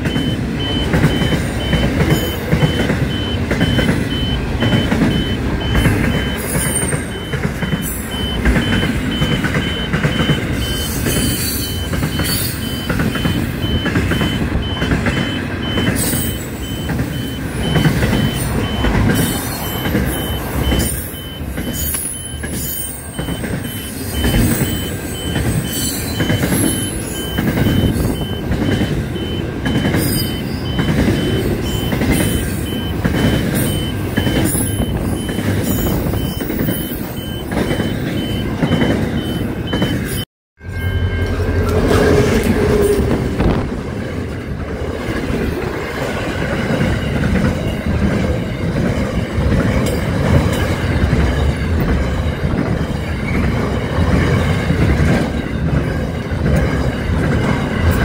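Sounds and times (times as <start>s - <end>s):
train knocks: 0.0s - 58.0s
train wheels rumbling on rails: 0.0s - 58.0s
high-pitched wheel squeals: 1.1s - 43.5s.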